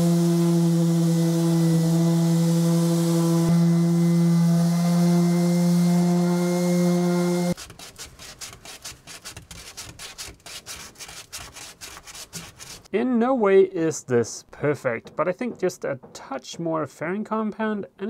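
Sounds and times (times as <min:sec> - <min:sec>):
electric sander running: 0:00.0 - 0:07.6.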